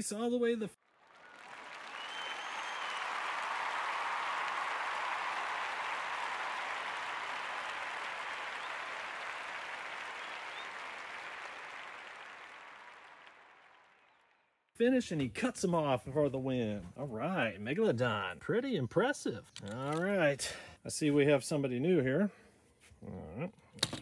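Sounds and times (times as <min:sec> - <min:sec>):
crowd cheering and applauding: 0:00.8 - 0:14.2.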